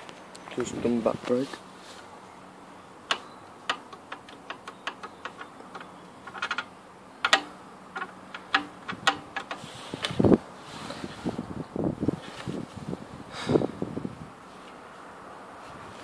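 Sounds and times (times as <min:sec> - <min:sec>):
handling clicks and ticks: 0:03.0 - 0:10.2.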